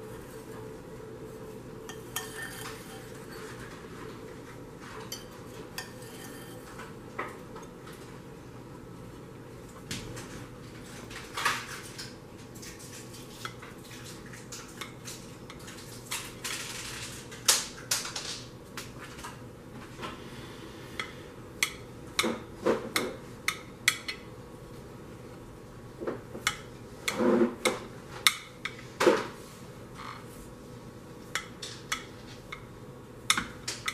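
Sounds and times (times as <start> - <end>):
knife scraping a baking dish: 1.8 - 4.0, 4.8 - 6.9, 27.0 - 27.8
knife tapping on a plate: 21.0 - 24.3, 33.3 - 33.9.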